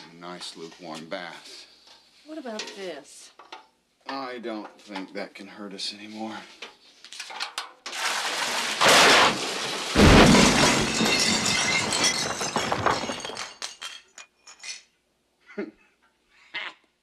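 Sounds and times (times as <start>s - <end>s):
glass breaking crash: 7.9s - 14.1s
debris clattering: 7.9s - 14.7s.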